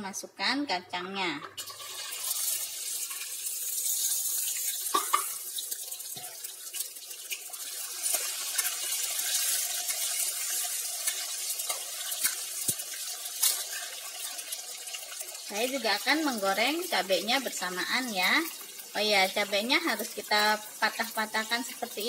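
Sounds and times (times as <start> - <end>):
peanuts sizzling in hot oil: 1.6 - 22.0.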